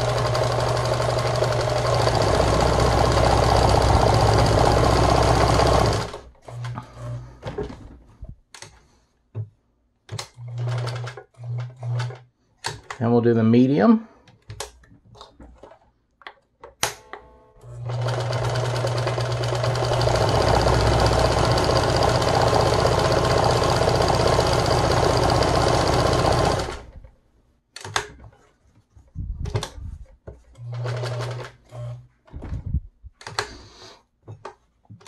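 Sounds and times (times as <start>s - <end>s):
sewing machine stitching: 0.0s - 7.8s, 10.2s - 12.3s, 17.6s - 27.0s, 30.6s - 32.0s.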